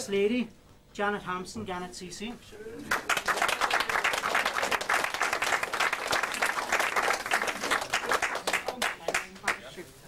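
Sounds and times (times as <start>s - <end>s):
people clapping: 2.8s - 9.8s.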